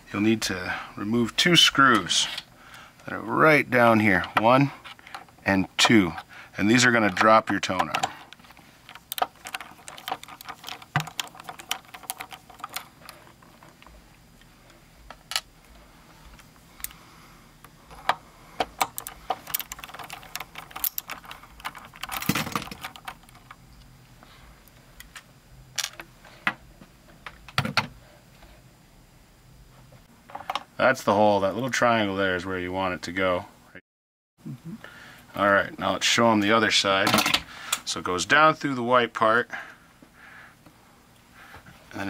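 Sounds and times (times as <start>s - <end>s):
loose metal parts clinking: 4.1s - 14.0s, 17.9s - 23.9s
screwdriver clicking on metal screws: 8.9s - 12.9s, 18.8s - 23.6s.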